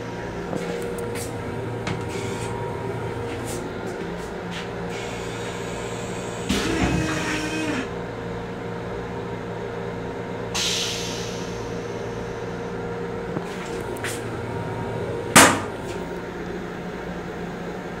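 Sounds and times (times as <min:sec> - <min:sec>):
railcar restroom hum: 0:00.0 - 0:18.0
toilet lid banging shut: 0:15.3 - 0:15.8.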